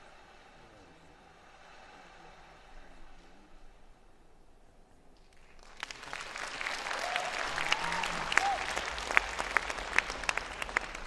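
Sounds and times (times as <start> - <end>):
audience applauding: 5.2 - 11.0.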